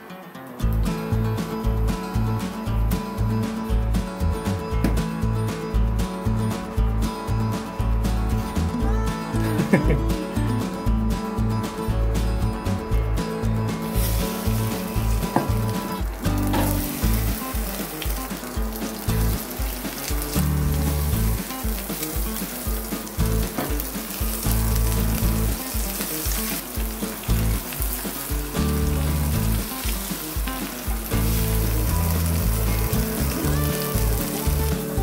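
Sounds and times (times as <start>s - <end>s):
shrimp sizzling in oil: 13.8s - 35.0s.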